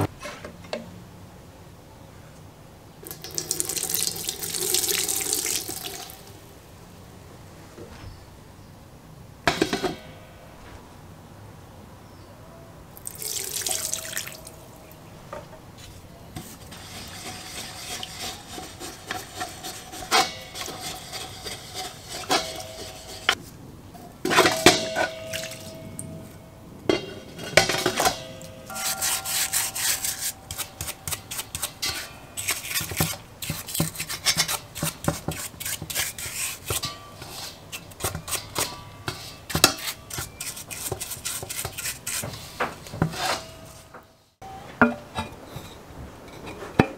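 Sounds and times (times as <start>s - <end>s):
brush scrubbing metal: 15.8s - 23.4s, 26.9s - 43.8s
metal clinking in basin: 20.1s - 23.4s, 24.3s - 32.9s.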